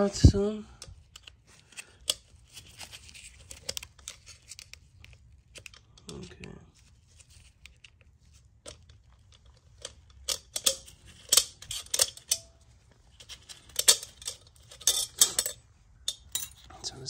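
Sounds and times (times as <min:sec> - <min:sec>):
metal tool clicks and clinks: 0:09.8 - 0:12.6, 0:13.4 - 0:16.7.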